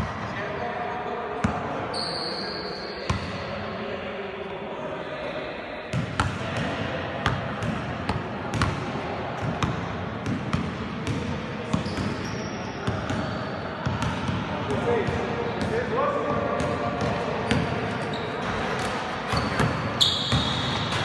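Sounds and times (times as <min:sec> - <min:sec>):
basketballs bouncing on court floor: 0:05.9 - 0:08.8, 0:09.4 - 0:15.8, 0:16.4 - 0:21.0.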